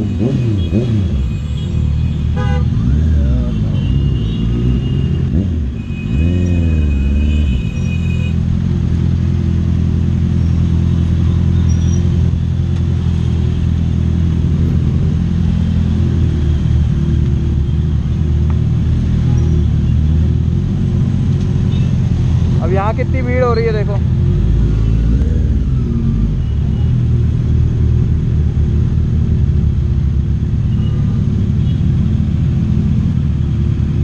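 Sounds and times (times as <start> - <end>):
vehicle horns: 0.0 - 8.4.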